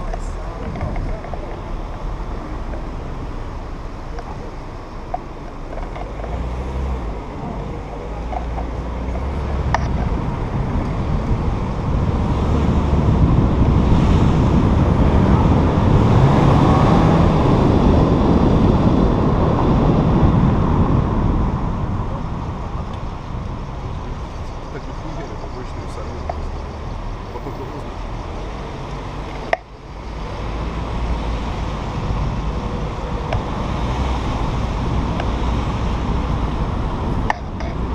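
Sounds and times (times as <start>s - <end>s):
wind rushing over camera: 0.0s - 37.9s
motorcycle engine accelerating: 5.6s - 24.3s.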